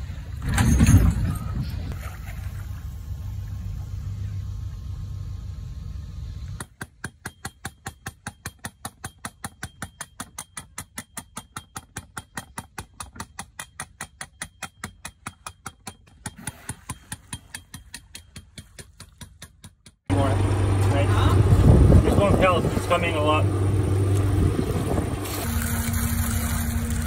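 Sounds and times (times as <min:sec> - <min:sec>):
low rumble: 0:00.0 - 0:06.6, 0:20.1 - 0:27.0.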